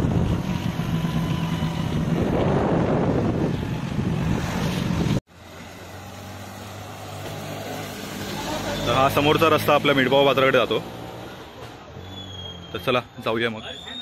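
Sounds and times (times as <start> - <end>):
wind buffeting microphone: 0.0 - 5.2
road traffic: 0.0 - 14.0.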